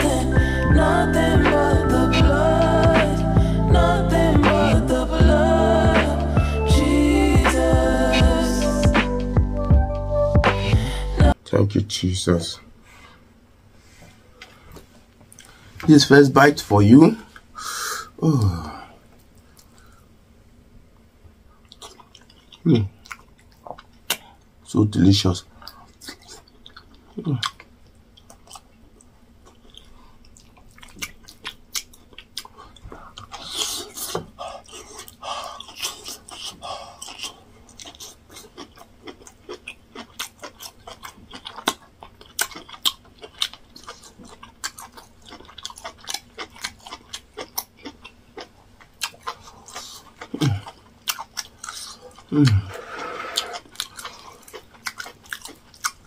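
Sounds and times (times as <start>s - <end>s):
man humming with relish: 0.0s - 11.4s, 17.7s - 19.0s, 50.3s - 50.7s, 52.3s - 53.6s
wet chewing: 21.6s - 24.4s, 25.6s - 56.0s.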